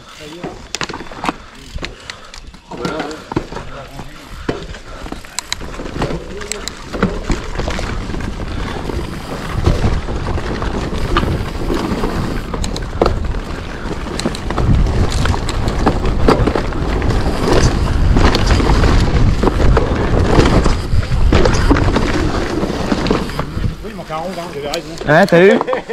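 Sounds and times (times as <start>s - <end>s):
bike rattling over bumps: 0.0s - 25.9s
bike tyres on dirt: 0.0s - 25.9s
wind on microphone: 6.7s - 24.0s.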